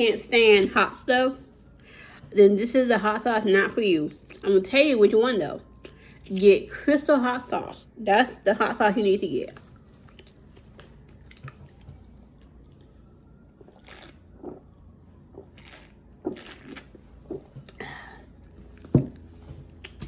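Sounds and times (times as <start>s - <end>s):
person gulping a drink: 13.6s - 19.3s.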